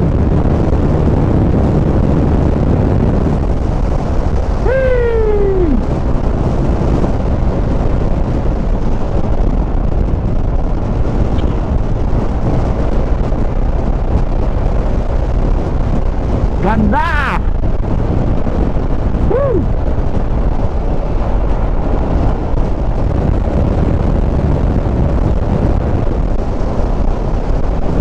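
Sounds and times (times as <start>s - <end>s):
motorcycle running: 0.0s - 28.0s
wind buffeting microphone: 0.0s - 28.0s.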